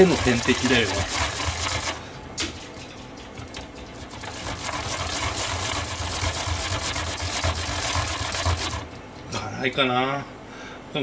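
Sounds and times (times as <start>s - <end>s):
radish rasping on grater: 0.0s - 2.0s, 3.0s - 8.9s.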